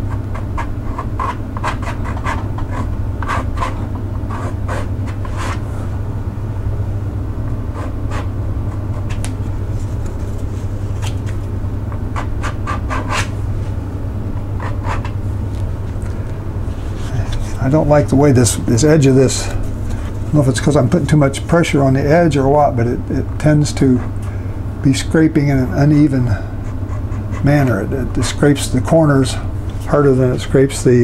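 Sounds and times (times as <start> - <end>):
low hum: 0.0 - 31.0
card scraping wet paint on paper: 7.7 - 11.5.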